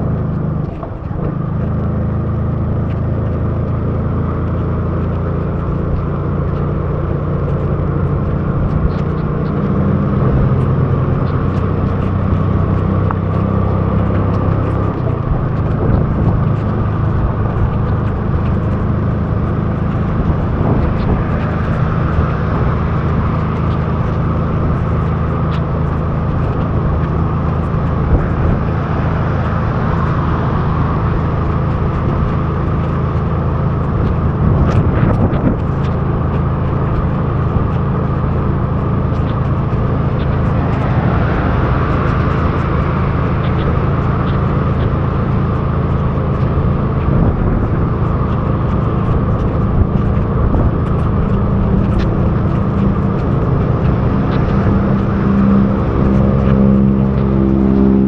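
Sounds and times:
scooter engine running: 0.0 - 58.0
wind and road noise: 0.0 - 58.0.

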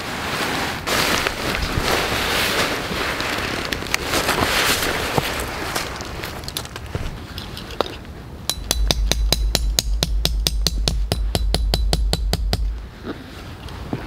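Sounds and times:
hammer tapping metal stake: 8.5 - 12.8.

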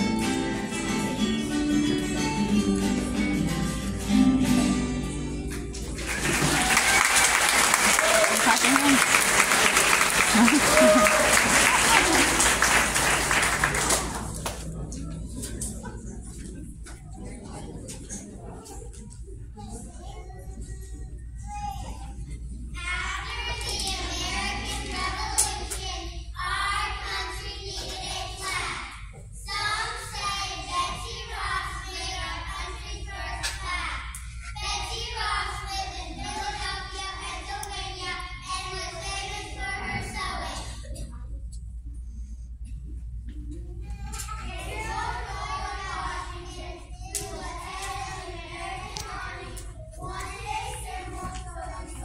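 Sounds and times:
sharp hand claps: 5.8 - 14.7
children's choir singing: 6.0 - 14.4, 22.8 - 40.8, 44.3 - 52.0
steady low hum: 9.0 - 52.0.

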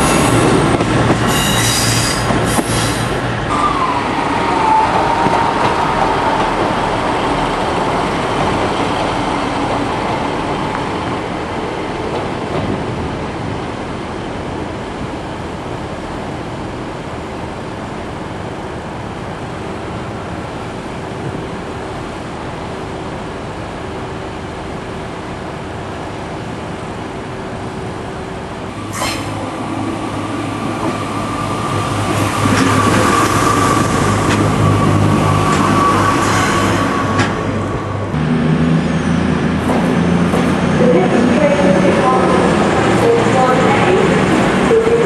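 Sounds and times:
train engine hum with high whine: 0.0 - 45.0
diesel engines rumbling: 28.6 - 45.0.

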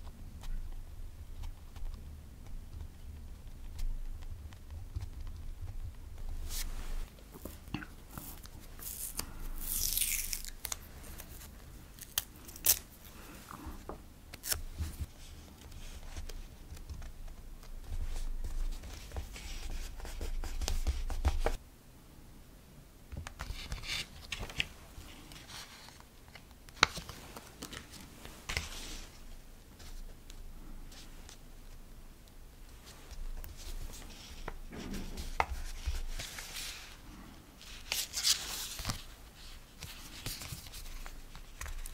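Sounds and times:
tape tearing: 8.8 - 10.9, 12.0 - 12.9
paper rustling: 23.4 - 31.4, 37.6 - 41.9.

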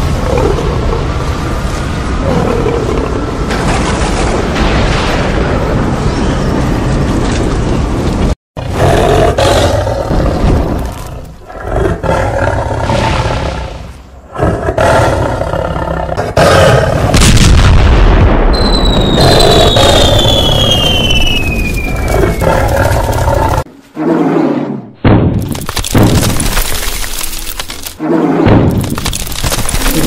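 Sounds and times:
rushing rumble: 0.0 - 16.2, 16.8 - 23.7
booms: 3.4 - 7.4, 17.0 - 22.2, 25.0 - 26.7, 28.4 - 30.0
high falling whistle: 18.6 - 22.1.

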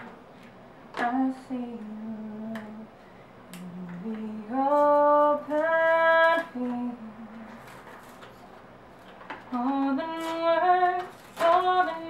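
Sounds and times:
woman singing unaccompanied: 0.9 - 2.9, 3.5 - 7.8, 9.5 - 12.0.

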